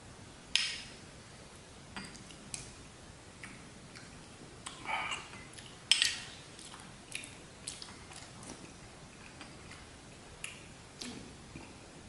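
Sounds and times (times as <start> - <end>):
mouth clicks and chewing: 3.4 - 11.8.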